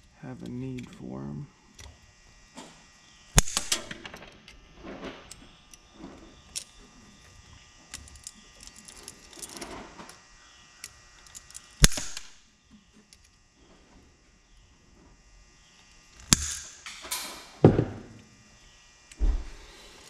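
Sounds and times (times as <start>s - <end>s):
small metal clinks: 7.9s - 9.8s, 10.8s - 11.9s
hand cutters snipping: 11.5s - 12.3s.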